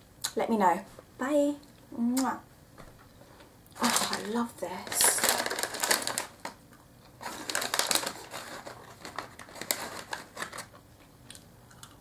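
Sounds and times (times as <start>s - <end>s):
apple chips crunching: 3.8s - 12.0s.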